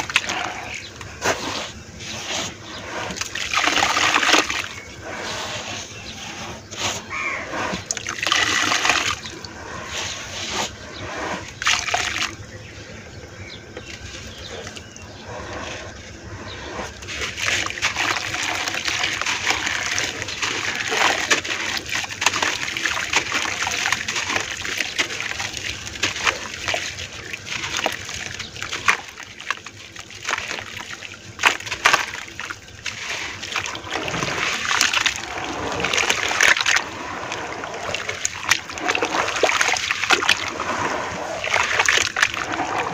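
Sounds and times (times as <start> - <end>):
hands sloshing wet mud: 0.0 - 12.5, 13.6 - 42.9
dirt pattering into water: 16.8 - 42.9.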